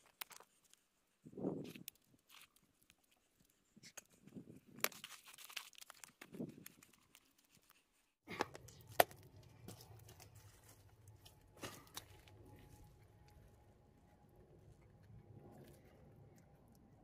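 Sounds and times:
low steady hum: 8.3 - 17.0.

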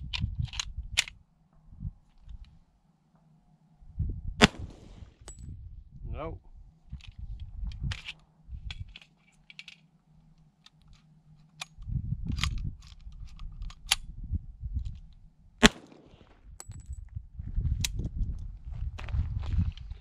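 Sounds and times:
metallic clicks of pistol handling: 0.1 - 1.2, 6.9 - 14.1
pistol shot: 4.4 - 5.2, 15.6 - 16.4.

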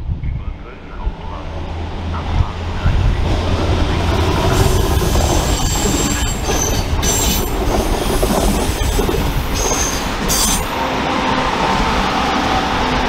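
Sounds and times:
train wheels rumbling: 0.5 - 13.0
high wheel squeals: 4.5 - 10.8.

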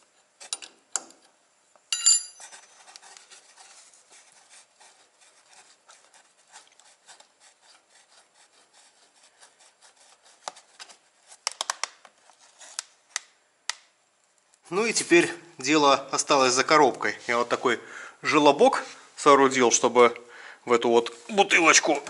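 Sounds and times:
sharp metallic clink: 1.9 - 2.5.

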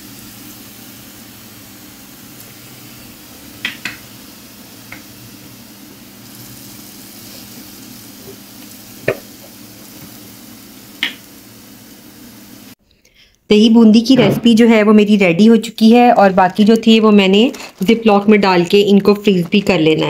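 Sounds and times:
batter deep-frying in hot oil: 0.0 - 12.8.

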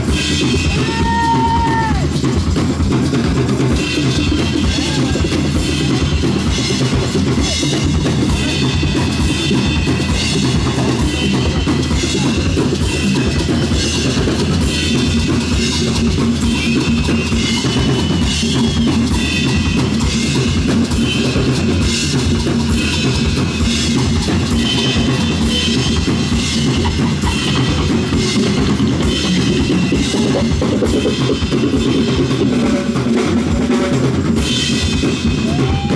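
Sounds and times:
drum kit with cymbals: 0.0 - 35.9
live rock band playing: 0.0 - 35.9.

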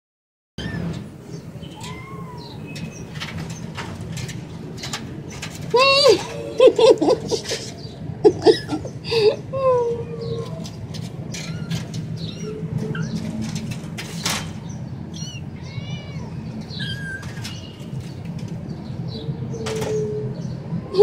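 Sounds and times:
wire mesh cage rattling: 0.6 - 7.9, 10.3 - 15.6, 16.6 - 18.9
kittens mewing: 1.7 - 2.7, 15.1 - 17.5.

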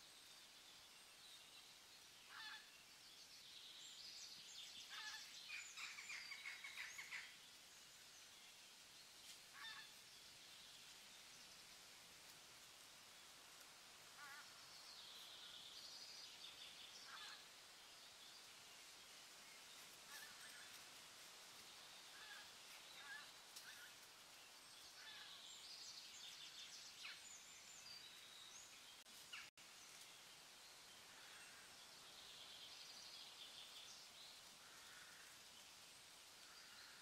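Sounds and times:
soft background hiss: 0.0 - 37.0
faint bird calls: 2.3 - 2.7, 4.8 - 7.4, 9.5 - 10.0, 14.2 - 15.6, 17.0 - 17.5.

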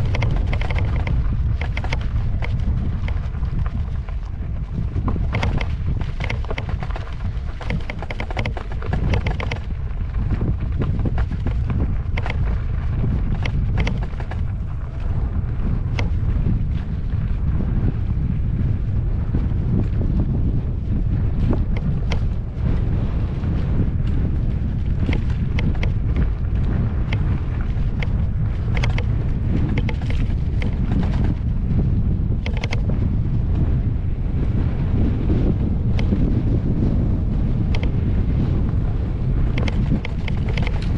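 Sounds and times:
wheel rattling over stones: 0.0 - 3.4, 5.2 - 14.7
wind rumbling on microphone: 0.0 - 40.9.

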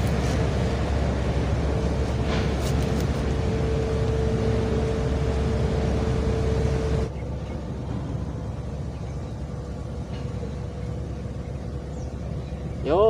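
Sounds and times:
mechanical hum: 0.0 - 13.0
mechanical low rumble: 0.0 - 13.0.

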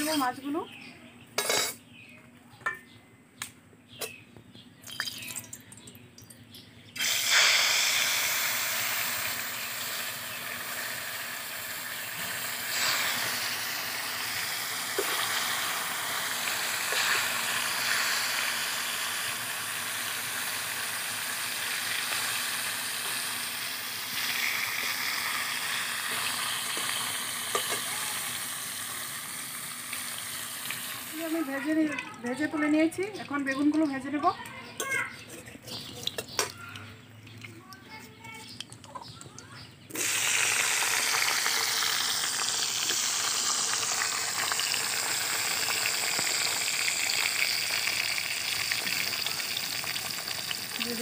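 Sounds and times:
fish sizzling in hot oil: 7.0 - 33.9, 39.9 - 51.0.

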